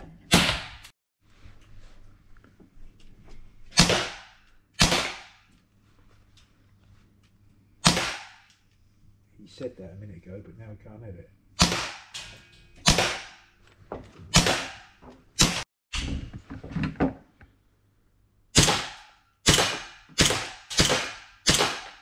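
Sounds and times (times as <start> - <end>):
air pistol shots echoing: 3.8 - 5.4, 7.8 - 8.5, 11.6 - 13.5, 14.3 - 15.6, 18.6 - 22.0.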